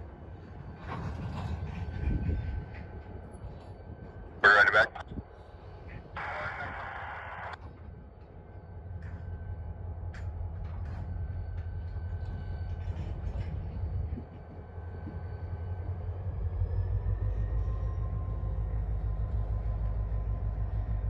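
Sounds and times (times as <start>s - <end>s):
freight train rumbling past: 0.0s - 6.8s, 7.5s - 21.0s.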